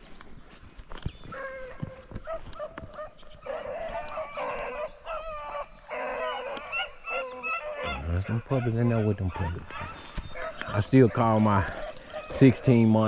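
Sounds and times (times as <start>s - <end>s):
hounds barking and baying: 1.2s - 13.0s.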